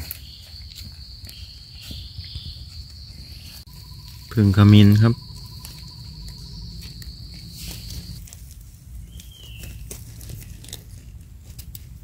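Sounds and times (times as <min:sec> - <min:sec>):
insect trilling: 0:00.0 - 0:08.2
dry leaves rustling: 0:00.0 - 0:12.0.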